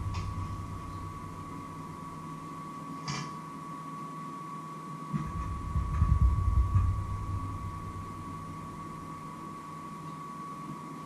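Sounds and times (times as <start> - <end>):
low rumbling: 0.0 - 2.5, 5.2 - 9.3
high-pitched whine: 0.0 - 11.0.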